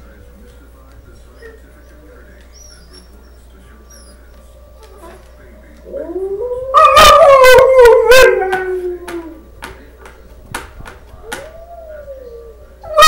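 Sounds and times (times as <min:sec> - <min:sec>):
dog howling: 0:01.3 - 0:09.5, 0:11.2 - 0:13.0.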